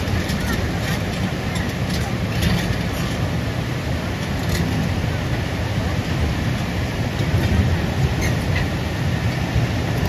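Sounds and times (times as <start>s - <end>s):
excavator diesel engine running: 0.0s - 10.0s.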